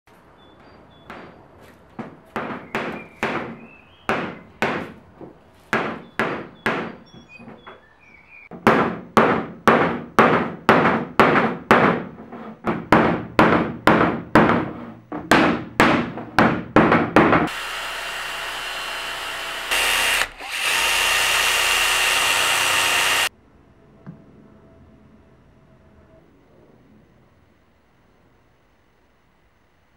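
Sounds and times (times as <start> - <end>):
hammer striking wood: 1.0 - 1.4, 2.0 - 7.1, 8.5 - 23.3
power tool running: 17.5 - 23.3.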